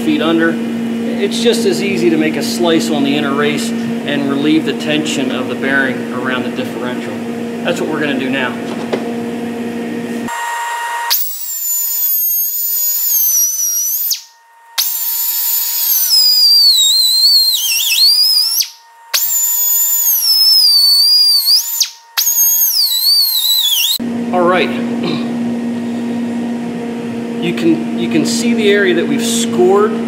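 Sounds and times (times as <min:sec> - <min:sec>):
pneumatic cutoff wheel cutting steel: 0:10.3 - 0:24.0.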